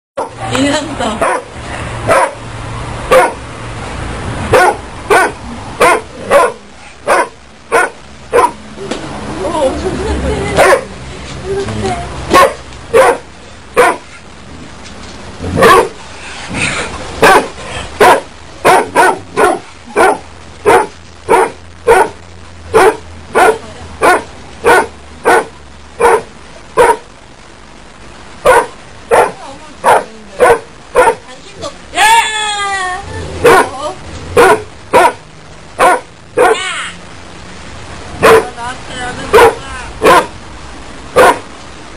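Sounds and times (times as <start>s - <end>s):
dog barking: 0.2s - 0.4s, 1.2s - 1.5s, 2.1s - 2.4s, 3.1s - 3.4s, 4.5s - 8.6s, 10.6s - 10.9s, 12.3s - 14.2s, 15.5s - 16.0s, 17.2s - 27.1s, 28.4s - 31.2s, 33.4s - 33.8s, 34.4s - 35.2s, 35.8s - 36.6s, 38.2s - 38.5s, 39.3s - 40.4s, 41.2s - 41.5s.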